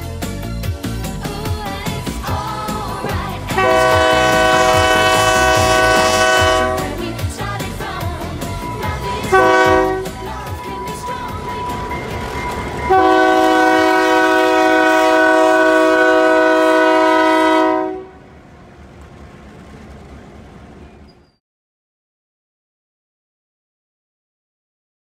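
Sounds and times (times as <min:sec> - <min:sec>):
locomotive rumble: 0:00.0 - 0:21.4
locomotive air horn blasts: 0:03.5 - 0:07.2, 0:08.6 - 0:12.0, 0:12.8 - 0:18.2.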